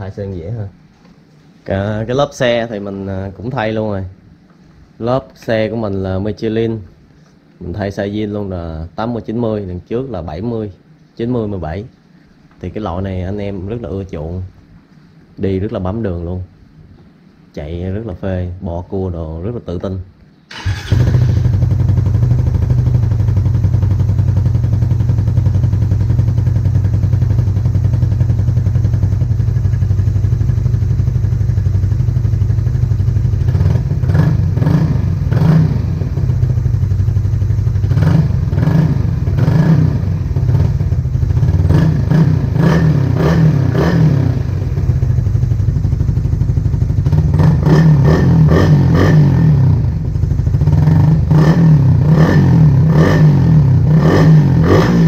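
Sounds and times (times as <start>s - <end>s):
motorcycle engine idling and revving: 20.5s - 55.0s.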